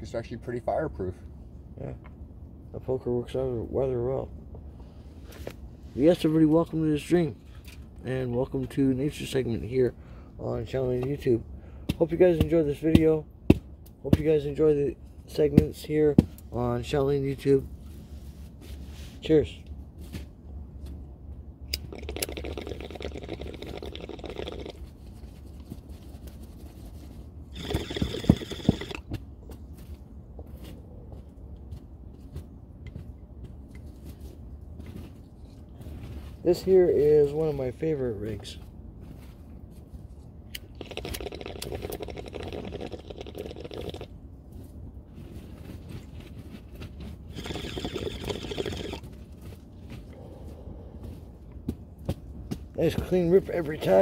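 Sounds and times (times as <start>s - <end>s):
water bong bubbling: 21.8s - 24.8s, 27.6s - 29.0s, 47.4s - 49.0s
water bubbling in a bong: 21.8s - 24.8s.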